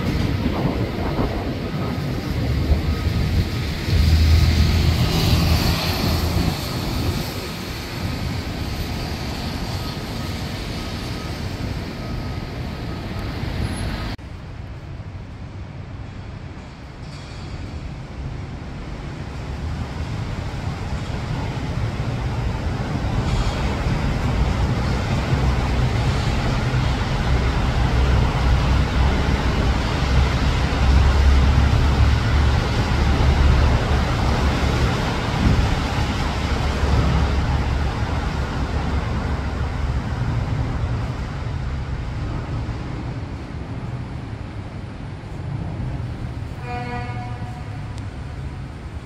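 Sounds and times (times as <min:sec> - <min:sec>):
wind rumbling on microphone: 0:00.0 - 0:10.6, 0:18.6 - 0:49.0
city traffic noise: 0:00.0 - 0:49.0.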